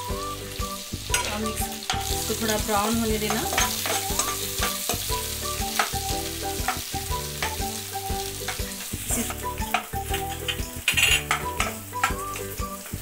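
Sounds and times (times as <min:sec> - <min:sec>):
light sizzle of frying: 0:00.0 - 0:13.0
steel spoon scraping wok: 0:03.2 - 0:07.7, 0:08.3 - 0:12.8.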